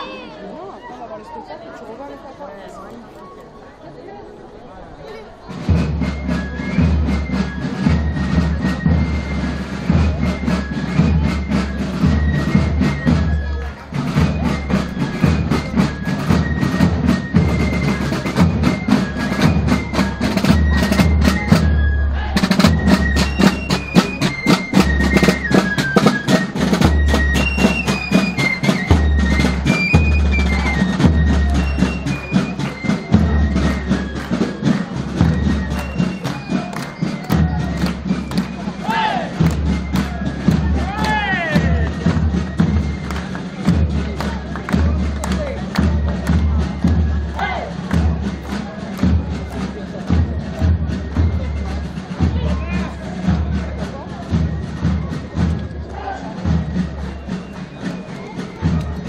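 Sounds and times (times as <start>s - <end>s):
side drums rolling: 5.2s - 59.0s
high stepping melody: 6.0s - 52.4s.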